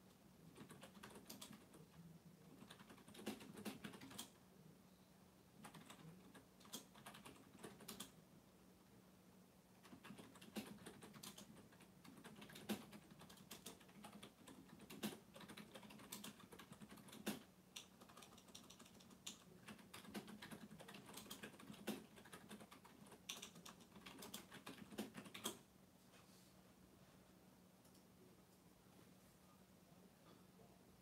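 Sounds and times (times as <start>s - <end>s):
low steady hum: 0.0s - 31.0s
keyboard typing: 0.5s - 4.4s, 5.6s - 8.2s, 9.8s - 25.6s.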